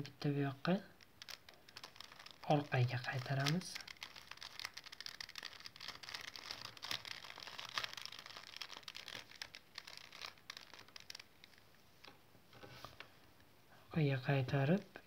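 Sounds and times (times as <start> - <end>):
puzzle cube clicking and rattling: 0.9 - 11.3.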